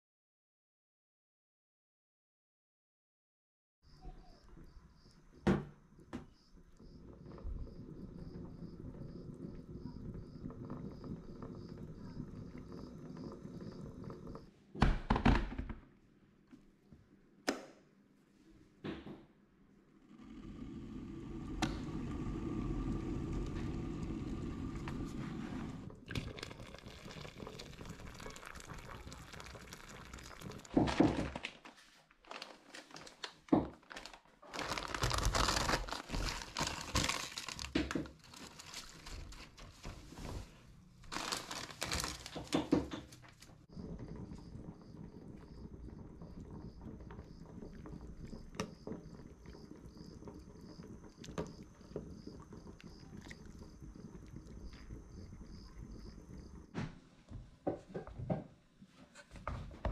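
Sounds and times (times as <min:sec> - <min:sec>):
pot simmering hiss: 0:04.2 - 0:14.5, 0:19.9 - 0:31.2, 0:35.0 - 0:58.4
electric kettle rumbling: 0:05.5 - 0:14.5, 0:19.9 - 0:31.3, 0:43.7 - 0:58.4
plastic packet crinkling: 0:26.2 - 0:39.9, 0:41.0 - 0:43.6.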